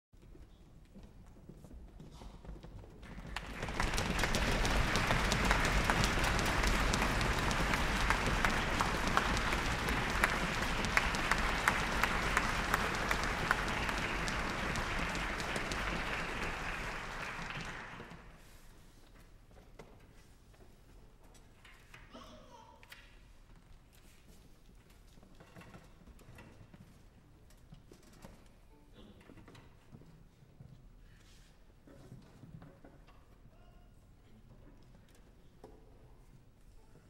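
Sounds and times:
audience applauding: 3.0 - 18.4.

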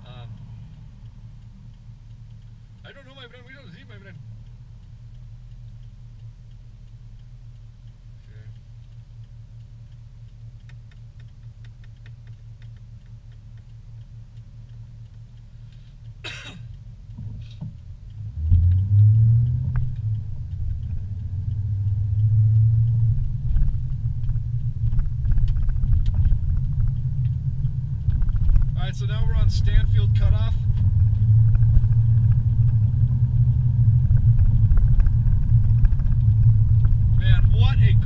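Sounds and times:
car engine idling: 0.0 - 38.0
engine and road rumble: 0.0 - 38.0
faint ticks: 0.0 - 38.0.

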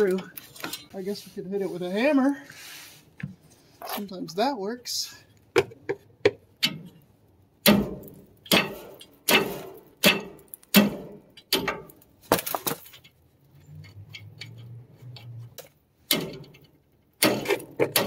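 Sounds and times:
hammer striking metal nut: 7.6 - 11.9.

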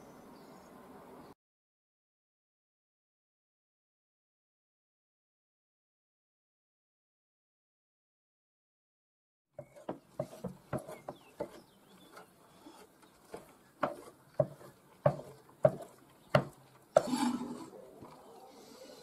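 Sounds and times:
knife chopping on wooden board: 9.6 - 17.4
knife scraping board: 9.6 - 17.8.

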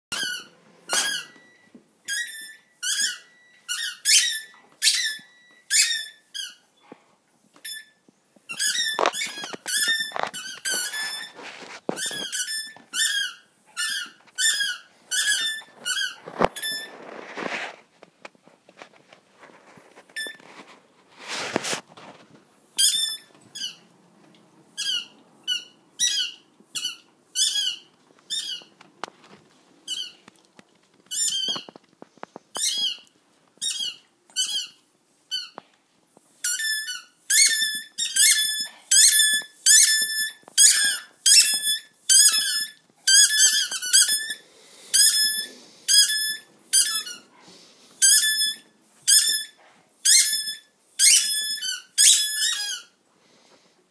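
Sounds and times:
squeaky ball squeaking: 0.1 - 6.8, 7.6 - 17.0, 20.1 - 20.5, 22.8 - 23.9, 24.8 - 28.8, 29.9 - 30.3, 31.0 - 31.8, 32.5 - 35.6, 36.4 - 47.3, 48.0 - 53.0.

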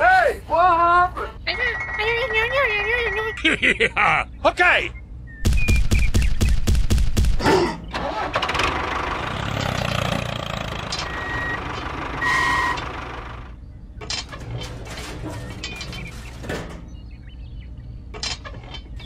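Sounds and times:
tractor engine starting and running: 7.8 - 17.4.

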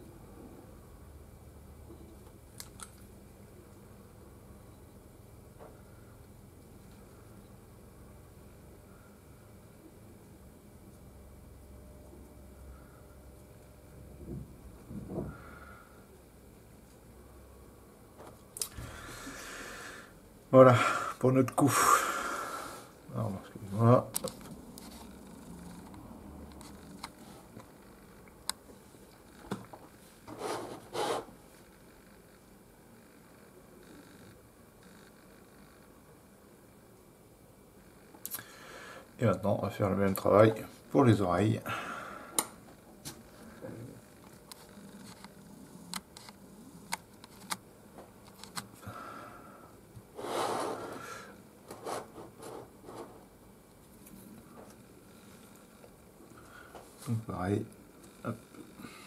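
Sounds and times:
rustling scrape: 30.1 - 31.3, 50.2 - 51.1.

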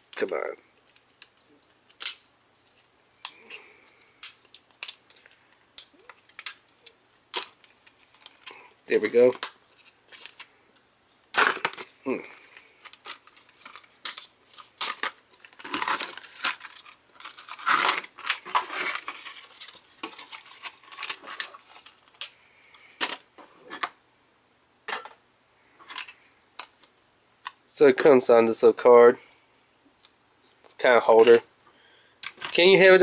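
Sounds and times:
plastic packaging crinkling: 11.3 - 23.2.

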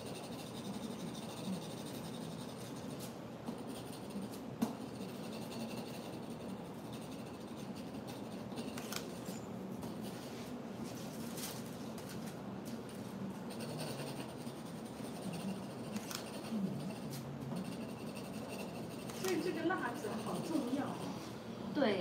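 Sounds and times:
stylus scraping stencil: 0.0 - 21.4
stencil sheet crackle: 11.1 - 21.0.

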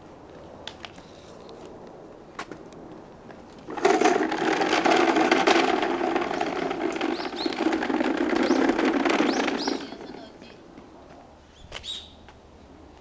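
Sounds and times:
plastic wheels rattling on asphalt: 3.3 - 10.7.

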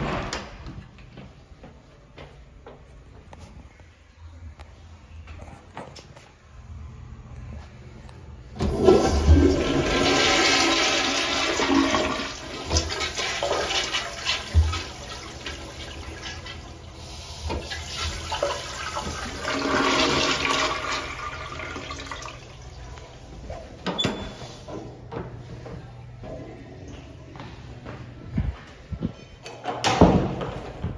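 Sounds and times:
toilet flushing: 8.6 - 23.2.

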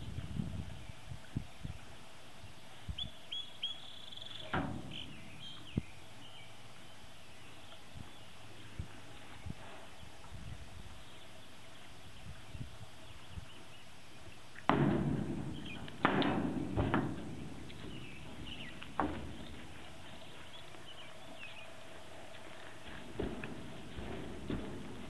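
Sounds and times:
horse hooves thudding in trailer: 4.1 - 6.9, 14.6 - 25.0.

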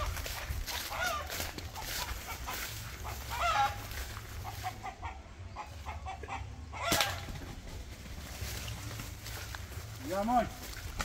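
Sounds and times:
chickens clucking: 0.0 - 11.0
wavering chicken call: 0.8 - 5.0.

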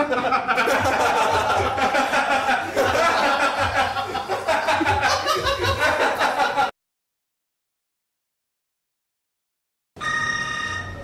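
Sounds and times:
laughter: 0.0 - 6.8.

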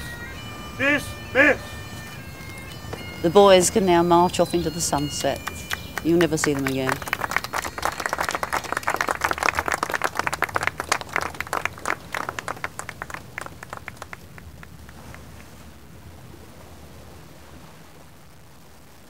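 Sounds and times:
group clapping: 0.8 - 15.5.

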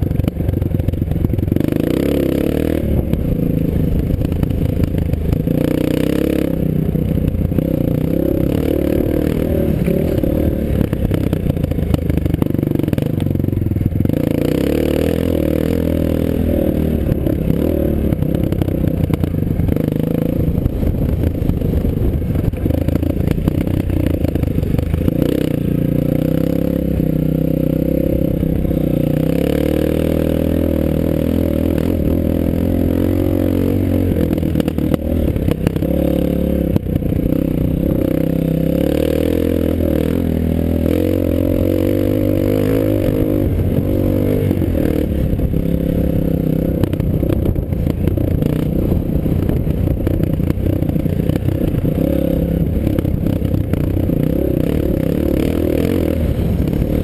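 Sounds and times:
bike rattling and clattering: 0.0 - 29.9
dirt bike engine revving: 0.0 - 57.0.

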